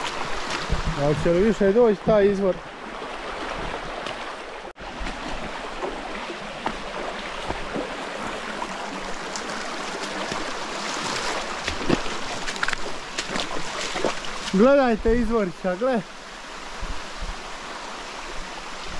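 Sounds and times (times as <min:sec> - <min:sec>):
small water splashes: 0:00.0 - 0:14.8
river flowing over stones: 0:00.0 - 0:18.9.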